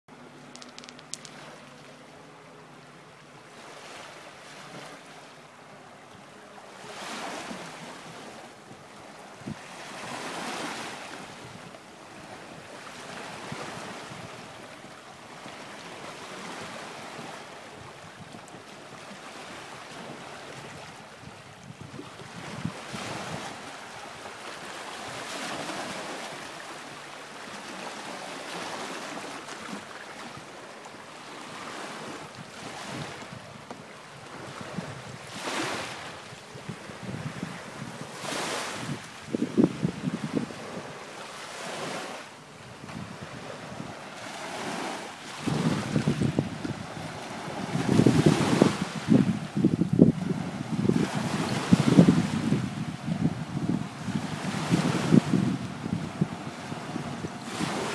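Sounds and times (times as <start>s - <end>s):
small waves lapping: 0.2s - 57.9s
wind buffeting microphone: 8.6s - 14.7s, 20.0s - 24.0s, 32.4s - 41.0s, 42.7s - 57.9s.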